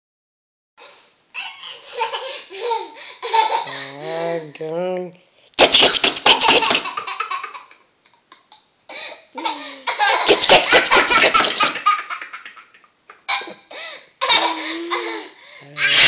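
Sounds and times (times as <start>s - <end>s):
toddler laughing: 5.6s - 8.5s, 9.4s - 13.6s, 14.2s - 16.0s.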